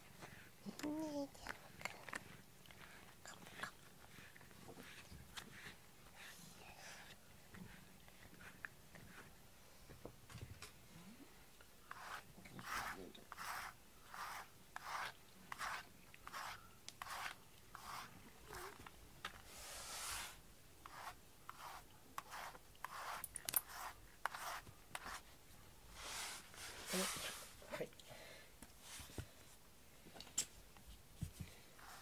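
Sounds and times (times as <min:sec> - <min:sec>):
brush swishing through fur: 0:02.8 - 0:09.3, 0:11.9 - 0:18.8, 0:19.4 - 0:25.3, 0:25.9 - 0:27.6, 0:30.9 - 0:32.0.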